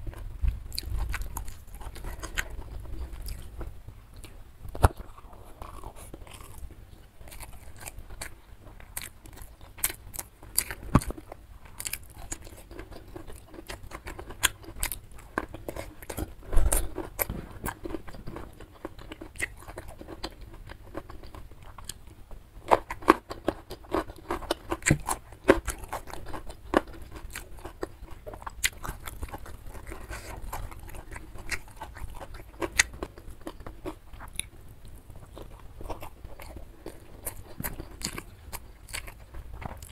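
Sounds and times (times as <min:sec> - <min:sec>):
close chewing with mouth clicks: 0:00.0 - 0:39.9
food crunching: 0:00.0 - 0:39.9.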